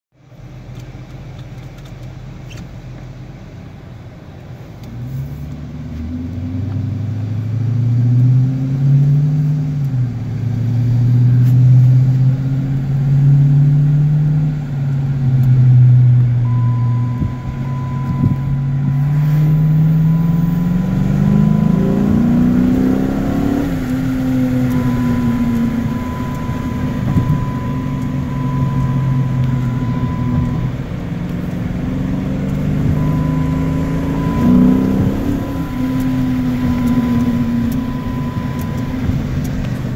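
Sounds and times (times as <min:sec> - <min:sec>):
deep car exhaust drone: 0:00.1 - 0:39.9
faint high steady tone: 0:16.4 - 0:20.7, 0:23.5 - 0:30.7, 0:33.0 - 0:39.2.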